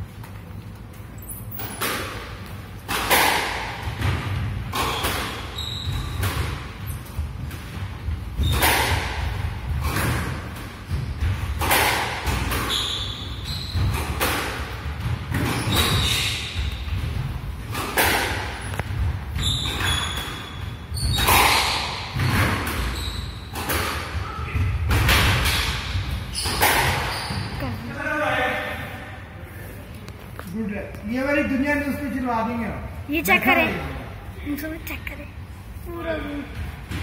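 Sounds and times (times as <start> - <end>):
squash ball hits: 1.7 - 12.9, 13.6 - 27.5
shoes squeaking on wooden floor: 4.8 - 7.2, 12.5 - 14.1, 18.6 - 23.6, 26.3 - 27.9.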